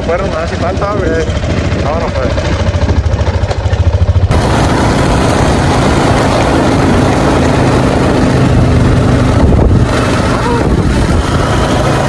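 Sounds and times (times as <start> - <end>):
quad bike engine: 0.0 - 12.0
wind noise: 0.0 - 12.0.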